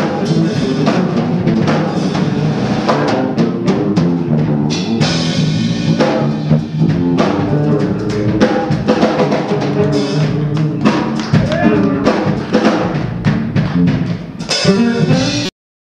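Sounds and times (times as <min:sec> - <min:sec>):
drum kit groove: 0:00.0 - 0:15.5
fretless electric bass soloing: 0:00.0 - 0:15.5.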